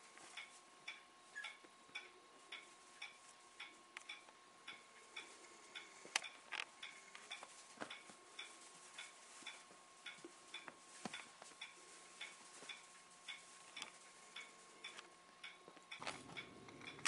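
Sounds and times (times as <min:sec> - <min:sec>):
clock ticking: 0:00.3 - 0:17.0
puppies scuffling on a pad: 0:07.4 - 0:14.2.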